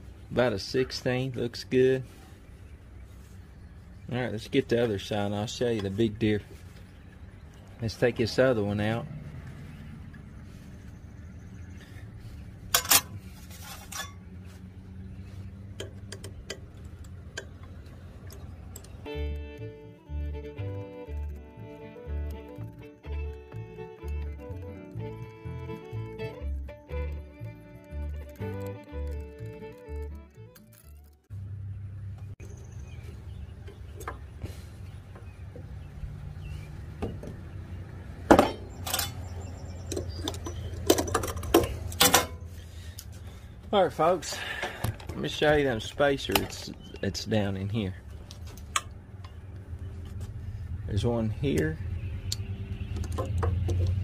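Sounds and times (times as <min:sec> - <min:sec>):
metal blade and hardware clinking: 0:12.7 - 0:14.3, 0:38.4 - 0:39.3
metal scrape: 0:12.7 - 0:14.3
metal tool clinks and clicks: 0:38.8 - 0:39.2.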